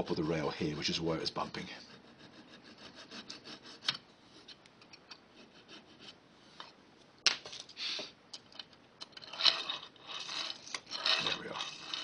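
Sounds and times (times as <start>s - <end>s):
scraping and clicking on model rails: 8.6s - 12.0s.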